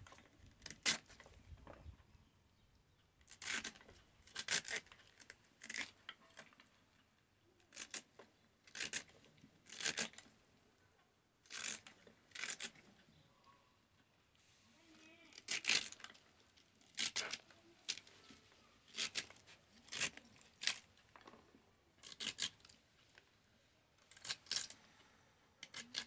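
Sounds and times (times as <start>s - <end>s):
cabbage being cut with blade: 3.3s - 3.8s, 18.9s - 20.9s, 22.0s - 22.6s.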